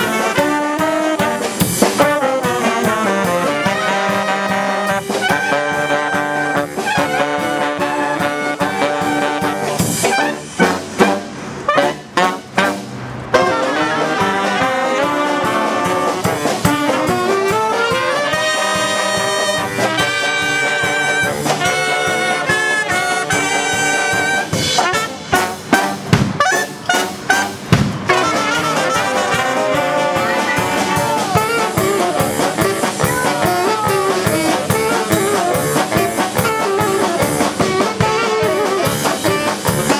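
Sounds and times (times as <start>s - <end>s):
jazz brass band playing: 0.0s - 39.9s
sharp drum hits: 26.0s - 26.4s, 27.6s - 28.2s.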